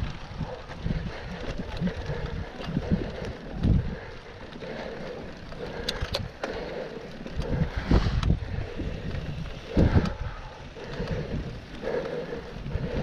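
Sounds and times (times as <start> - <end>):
low tyre rumble: 0.0 - 13.0
wind buffeting microphone: 0.0 - 13.0
sharp clicks: 5.6 - 6.7.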